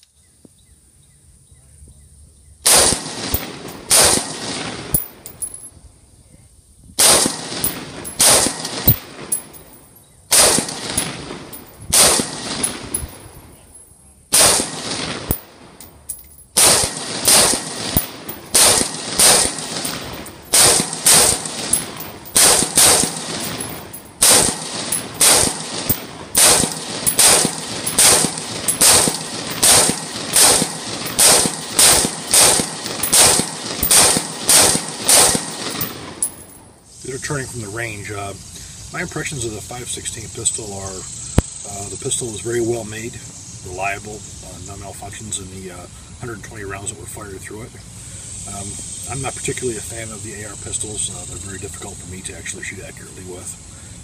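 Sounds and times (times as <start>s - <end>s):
pistol gunshots: 2.7s - 5.5s, 7.0s - 13.3s, 14.3s - 15.8s, 16.6s - 36.4s.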